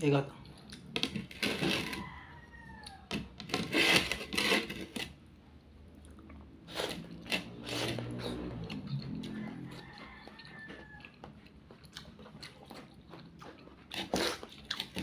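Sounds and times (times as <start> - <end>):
person slurping food: 6.6 - 9.0, 13.9 - 15.0.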